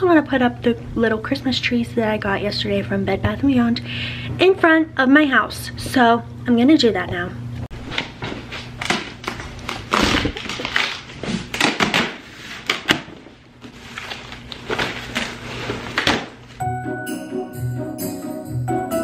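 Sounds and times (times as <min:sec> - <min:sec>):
cardboard and paper rustling: 0:07.8 - 0:16.6.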